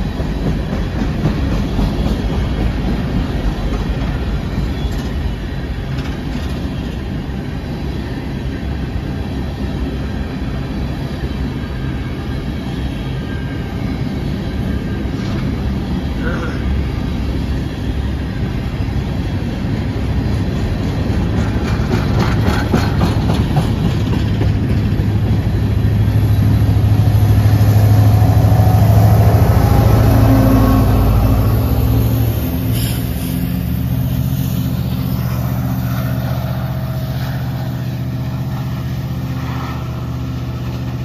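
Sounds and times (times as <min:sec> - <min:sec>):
train wheels clicking over rail joints: 0:00.0 - 0:07.6, 0:19.1 - 0:27.6, 0:32.5 - 0:41.0
diesel locomotive engine drone: 0:00.0 - 0:41.0.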